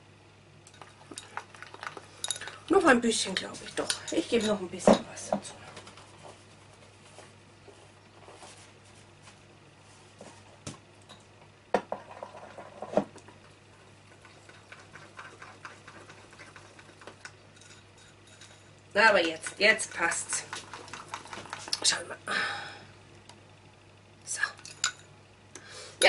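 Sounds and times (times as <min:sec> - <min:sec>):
spoon stirring icing in glass bowl: 0:14.1 - 0:21.9.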